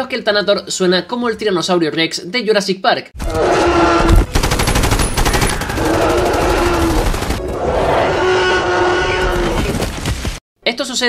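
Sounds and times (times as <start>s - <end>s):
creature roaring: 3.2s - 4.3s, 5.6s - 9.8s
creature rattling growl: 5.2s - 9.8s.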